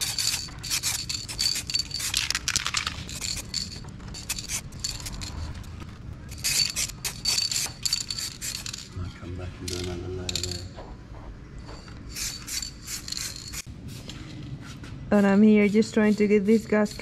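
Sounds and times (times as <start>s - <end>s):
spray paint can hissing: 0.0s - 4.9s, 6.3s - 8.9s, 12.1s - 13.7s.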